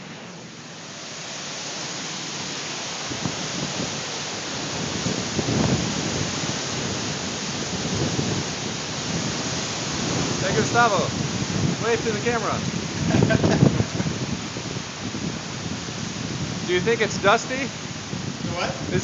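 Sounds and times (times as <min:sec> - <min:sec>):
strong wind rushing: 0:00.0 - 0:19.0
wind gusts buffeting microphone: 0:00.0 - 0:19.0.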